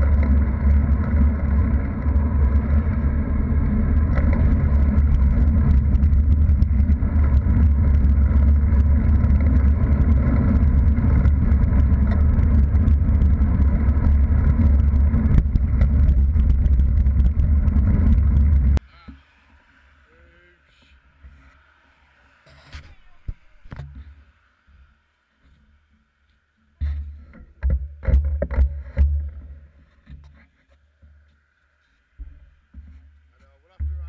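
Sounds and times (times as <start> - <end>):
wind buffeting microphone: 0.0 - 18.8
tyre and road noise: 0.0 - 34.0.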